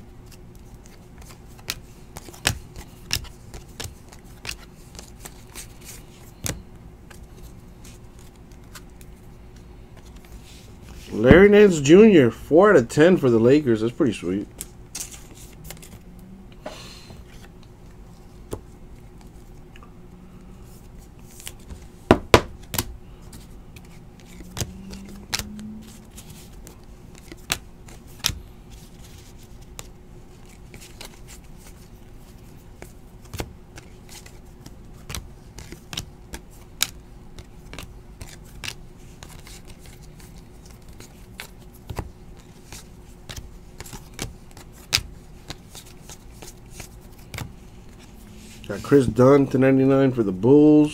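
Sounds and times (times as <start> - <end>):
cards clicking and snapping: 0.3 - 9.1, 14.6 - 16.0, 21.3 - 31.9, 32.8 - 48.0.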